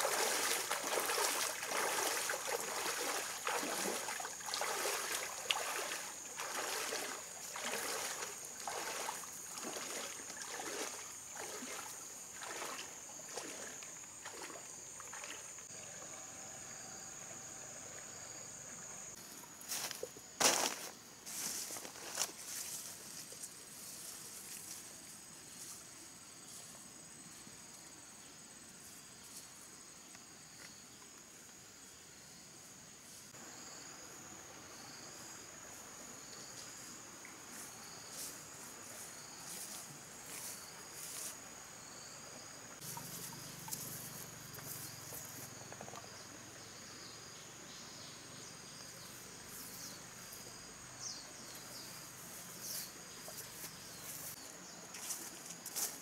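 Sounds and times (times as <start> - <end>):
pulsing insect call: 0.0 - 20.6, 33.3 - 55.2
insects droning: 0.0 - 56.0
footsteps through undergrowth: 19.7 - 25.8, 52.2 - 56.0.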